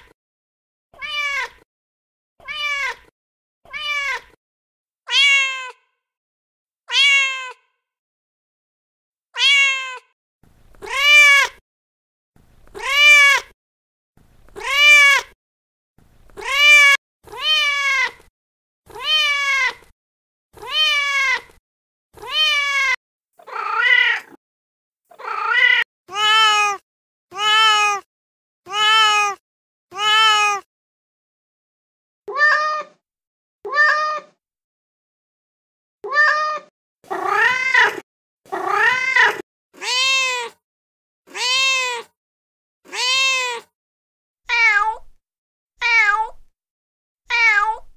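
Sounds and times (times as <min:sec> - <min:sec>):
cat meowing: 0:01.0 - 0:01.6, 0:02.4 - 0:03.1, 0:03.7 - 0:04.4, 0:05.1 - 0:05.9, 0:06.9 - 0:07.7, 0:09.4 - 0:10.1, 0:10.8 - 0:11.6, 0:12.7 - 0:13.5, 0:14.5 - 0:15.4, 0:16.4 - 0:18.3, 0:18.9 - 0:19.9, 0:20.6 - 0:21.6, 0:22.2 - 0:24.4, 0:25.1 - 0:28.1, 0:28.7 - 0:30.7, 0:32.3 - 0:33.0, 0:33.7 - 0:34.4, 0:36.0 - 0:40.6, 0:41.3 - 0:42.2, 0:42.9 - 0:43.7, 0:44.5 - 0:45.2, 0:45.8 - 0:46.5, 0:47.3 - 0:47.9.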